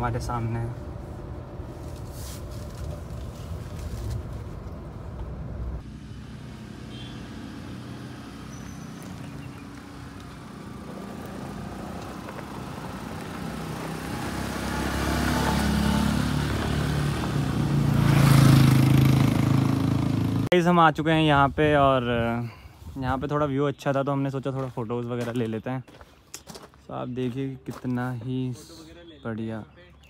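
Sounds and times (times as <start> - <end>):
vehicle engine and tyres passing: 0.0 - 20.5
vehicle engine rumble: 0.0 - 20.6.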